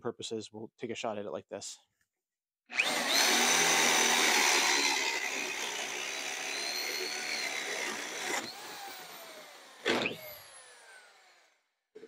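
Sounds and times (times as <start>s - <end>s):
power drill boring through wood: 2.7s - 11.6s.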